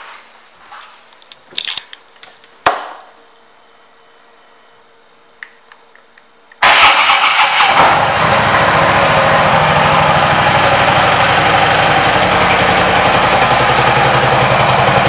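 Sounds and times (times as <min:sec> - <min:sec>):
faint electrical whine: 0:00.0 - 0:06.6
motorcycle engine running: 0:07.7 - 0:15.0.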